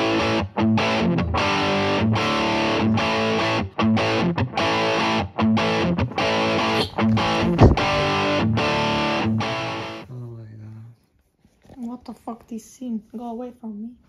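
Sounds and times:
distorted electric guitar rock: 0:00.0 - 0:10.0.

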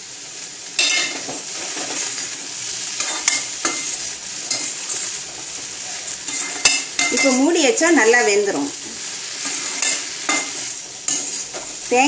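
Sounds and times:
okra sizzling in a pan: 0:00.0 - 0:12.0
metal spoon scraping a pan: 0:03.0 - 0:12.0.

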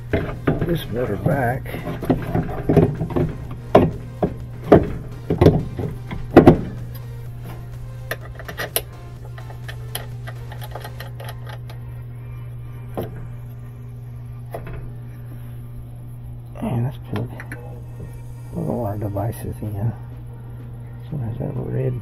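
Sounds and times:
loud knocks on machine parts: 0:02.0 - 0:06.8.

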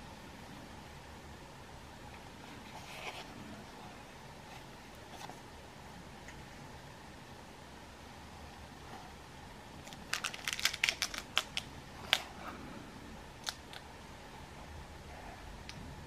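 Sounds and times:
plastic packaging clicks and crackles: 0:09.8 - 0:12.3.

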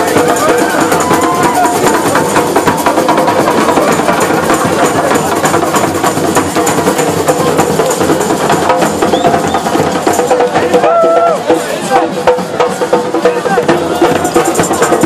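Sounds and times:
hand drums beating fast rhythm: 0:00.0 - 0:15.0.

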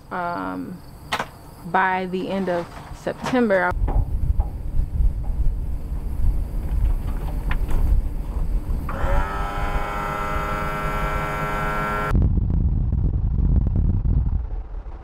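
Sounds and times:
electric pump motor whine: 0:08.8 - 0:12.1
truck driving rumble: 0:09.8 - 0:15.0.

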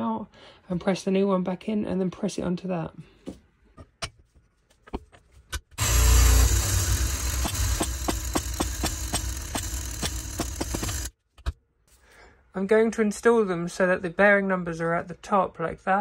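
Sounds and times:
hydraulic pump droning and ticking: 0:05.8 - 0:11.1.

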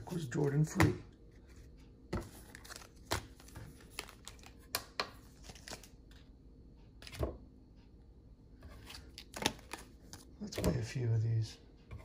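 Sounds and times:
crinkling card pack wrapper: 0:02.4 - 0:06.0, 0:08.9 - 0:10.2.

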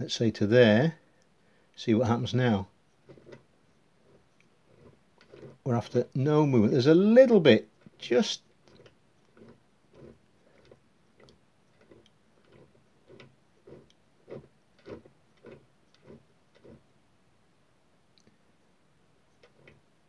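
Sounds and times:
model locomotive wheels clicking: 0:07.8 - 0:16.8.

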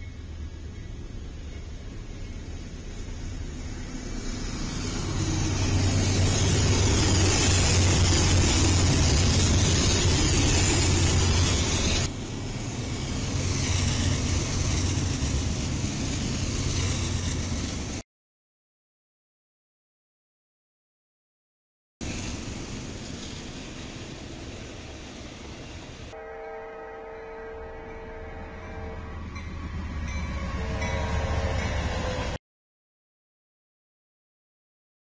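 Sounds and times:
locomotive engine rumble: 0:00.0 - 0:18.0
wheels hissing on rail: 0:00.2 - 0:18.0, 0:22.0 - 0:26.2.

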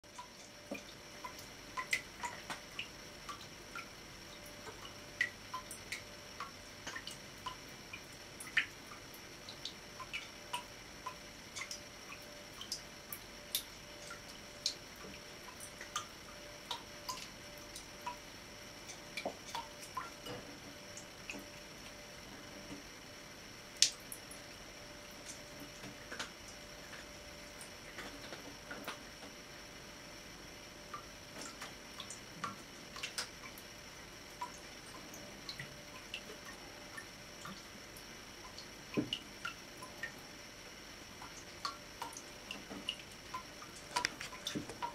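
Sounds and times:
water dripping into metal sink: 0:00.1 - 0:21.6, 0:34.3 - 0:40.2, 0:41.2 - 0:44.9.

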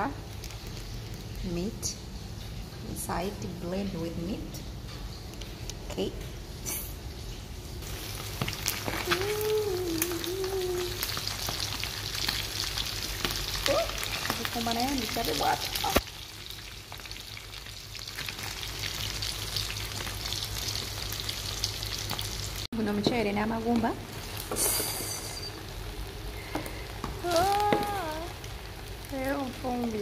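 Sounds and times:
meat sizzling in hot oil: 0:07.8 - 0:22.7, 0:24.0 - 0:30.0.

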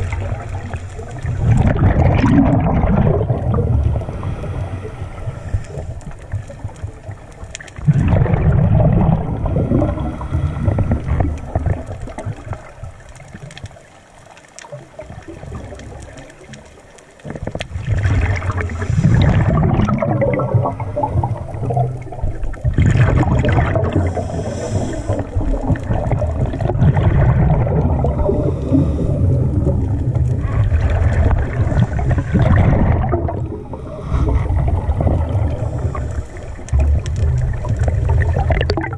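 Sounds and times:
underwater regulator bubbles: 0:00.0 - 0:13.7, 0:14.6 - 0:38.9.

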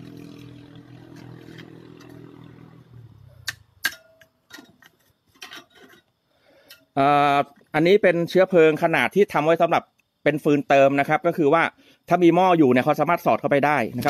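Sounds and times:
sharp clicks: 0:03.4 - 0:04.3.

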